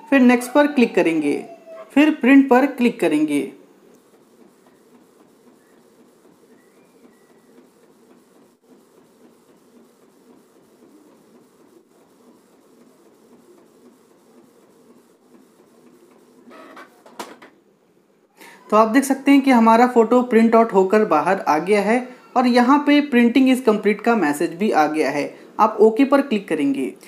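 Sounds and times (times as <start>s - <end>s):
printer running: 2.0s - 17.2s.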